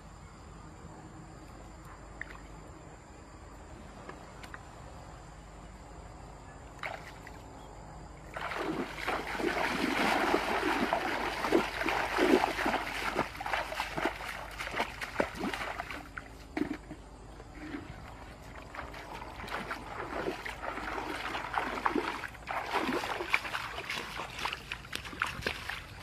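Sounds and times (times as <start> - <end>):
water splashing from wading: 6.8 - 7.5, 8.2 - 26.0.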